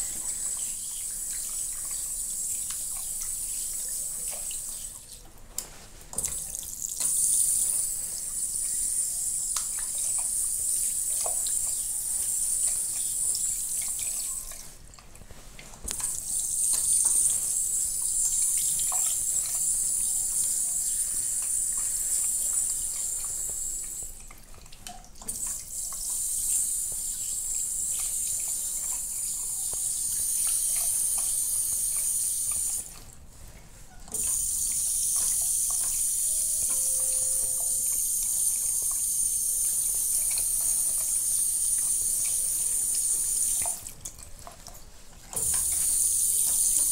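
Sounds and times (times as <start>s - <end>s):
tap water splashing in basin: 9.5s - 11.8s, 12.6s - 33.1s, 34.1s - 36.8s, 39.7s - 46.9s.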